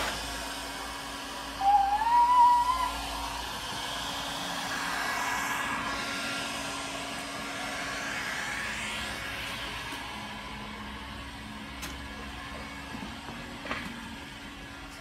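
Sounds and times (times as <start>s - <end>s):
rising whistle: 1.5s - 6.0s.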